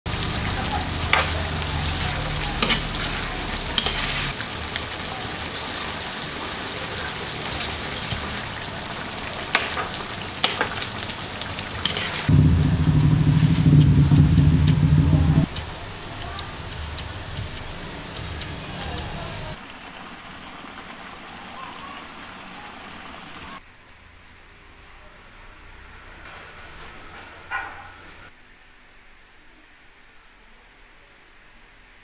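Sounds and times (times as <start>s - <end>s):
stew simmering and sizzling in pan: 0.1s - 23.6s
metal utensils clicking against pan: 2.0s - 4.3s, 9.5s - 10.9s, 11.8s - 12.3s
low steady hum: 12.3s - 16.0s.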